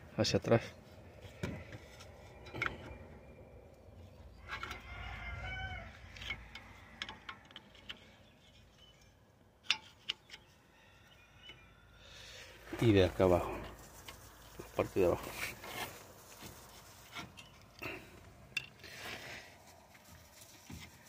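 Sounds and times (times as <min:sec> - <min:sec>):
metal clicks and knocks: 0:09.6 - 0:10.5.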